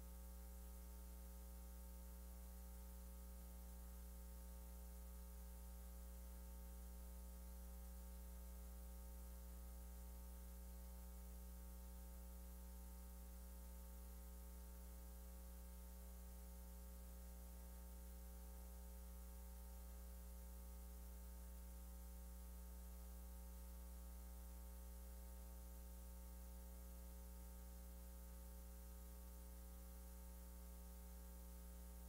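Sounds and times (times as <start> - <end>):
electrical hum with faint hiss: 0.0 - 32.0.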